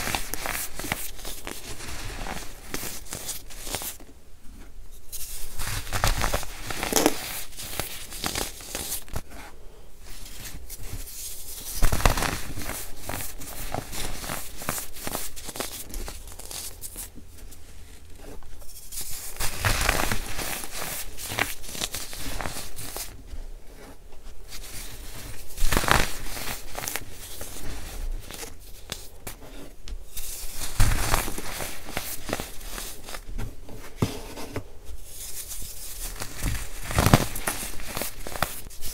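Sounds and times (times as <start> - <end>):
baking soda crunching by hand: 5.6 - 9.1.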